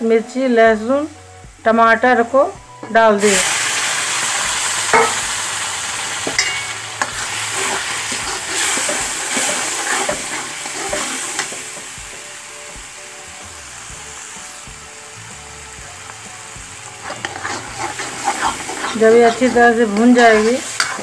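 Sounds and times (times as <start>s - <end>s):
paste sizzling in hot oil: 2.8s - 21.0s
metal spoon scraping pan: 4.9s - 5.4s, 6.2s - 11.9s, 17.0s - 21.0s.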